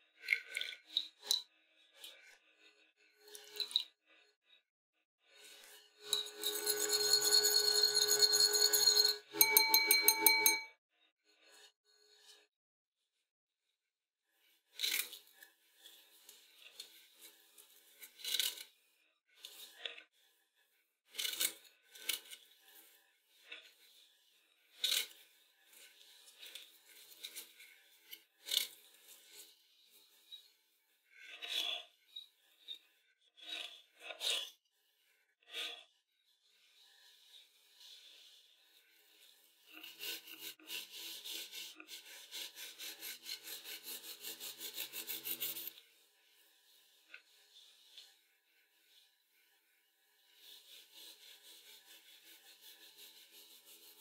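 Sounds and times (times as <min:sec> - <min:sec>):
knife sawing through cake: 0:39.7 - 0:45.8, 0:50.3 - 0:54.0.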